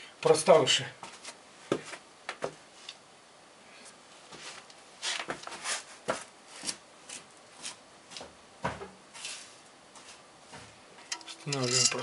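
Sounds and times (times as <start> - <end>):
metal parts and hand tools clicking: 11.0 - 12.0.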